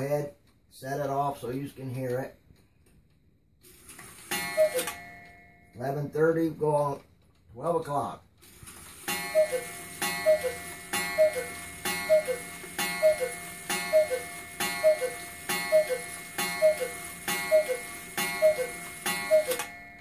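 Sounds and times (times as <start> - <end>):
clock striking: 4.2 - 7.0, 9.0 - 20.0
two-note cuckoo call: 4.3 - 5.0, 9.1 - 20.0.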